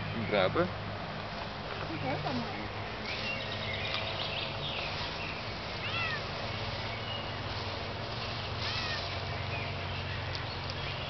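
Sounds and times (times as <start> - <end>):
cat meowing: 5.8 - 6.3.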